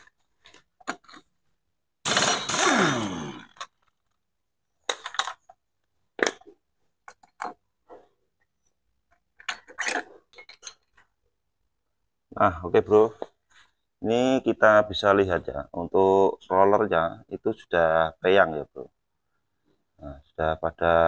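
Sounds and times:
impact wrench running: 2.1s - 3.6s.

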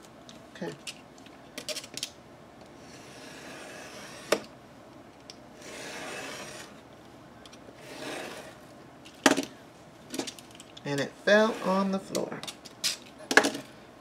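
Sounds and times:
paper rasping against paper: 5.6s - 6.8s.

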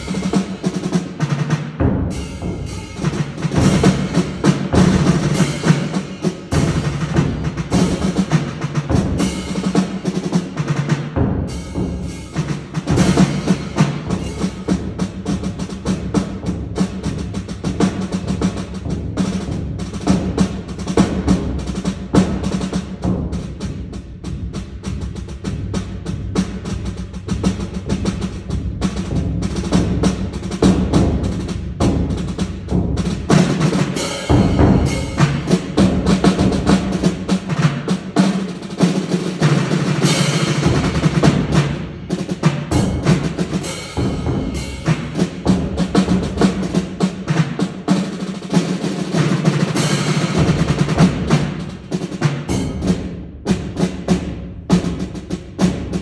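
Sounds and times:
bass drum: 0.0s - 47.6s, 49.6s - 56.0s
field drum: 0.0s - 56.0s
snare drums playing rolls: 0.0s - 56.0s.

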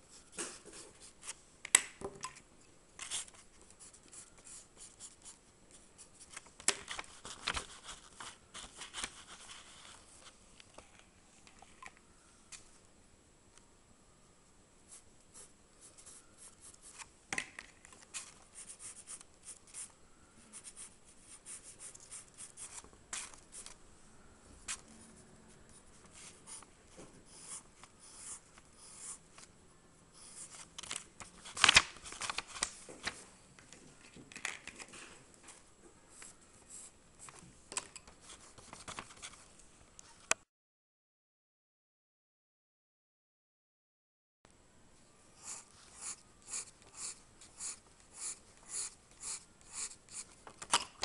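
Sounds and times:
pencil scratching on paper: 25.7s - 29.2s, 45.4s - 50.4s.

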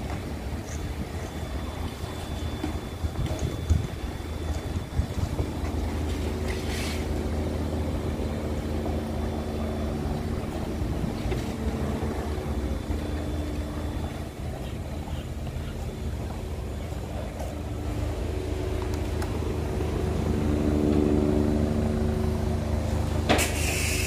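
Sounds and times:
car wash machinery humming: 0.0s - 24.0s
short hiss: 23.4s - 24.0s.

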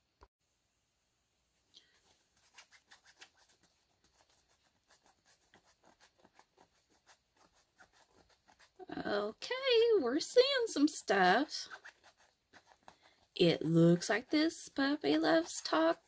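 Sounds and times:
fingernails scratching: 11.6s - 12.9s.

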